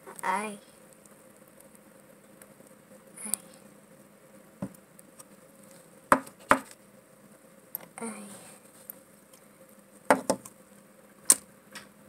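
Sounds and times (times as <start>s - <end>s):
low background hiss: 0.0s - 12.0s.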